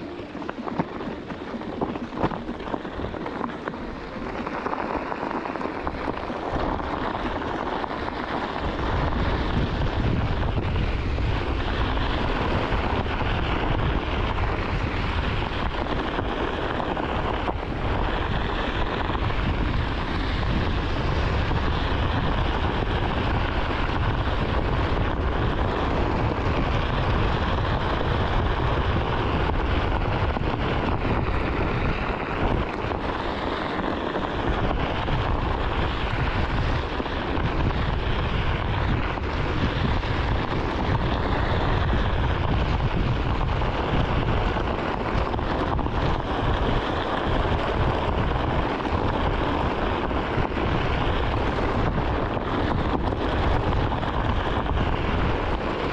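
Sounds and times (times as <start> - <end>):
wheel rolling over gravel: 0.0 - 55.9
wind rumbling on microphone: 0.0 - 55.9.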